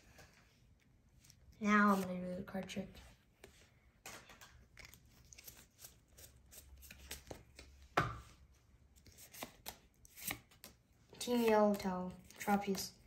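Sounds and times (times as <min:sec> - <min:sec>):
trading cards clicking and sliding: 0:09.0 - 0:12.9.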